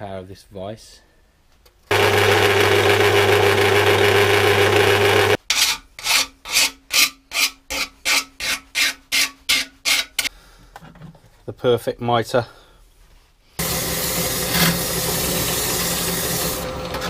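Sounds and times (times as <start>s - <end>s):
metal-cutting bandsaw whirring: 1.9s - 5.4s, 13.6s - 17.0s
hand file rasping on steel: 5.5s - 10.3s.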